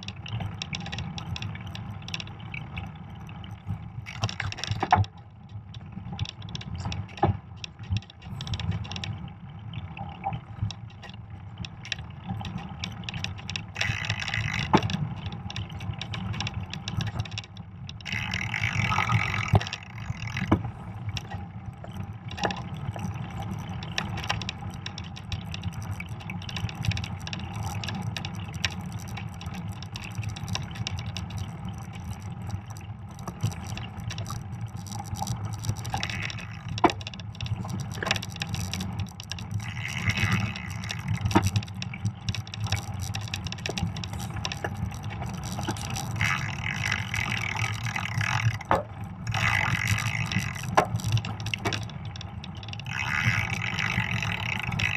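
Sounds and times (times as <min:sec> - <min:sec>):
tires rumbling over snow: 0:00.0 - 0:54.9
bike rattling and knocking: 0:12.9 - 0:54.9.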